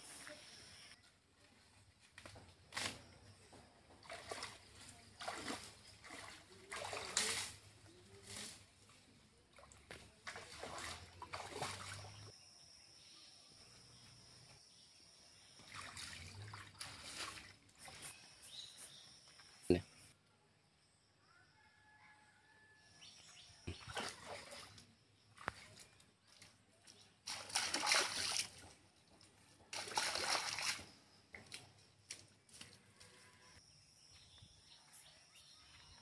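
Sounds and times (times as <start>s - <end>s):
muddy water splashing: 3.9s - 12.3s, 15.5s - 18.2s, 23.7s - 32.9s.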